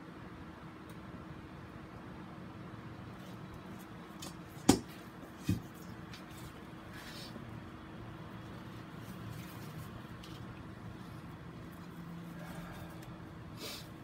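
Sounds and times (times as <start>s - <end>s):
low steady hum: 0.0s - 14.0s
sharp knocks on board: 4.6s - 5.7s
faint rustling and fiddling: 8.2s - 13.9s.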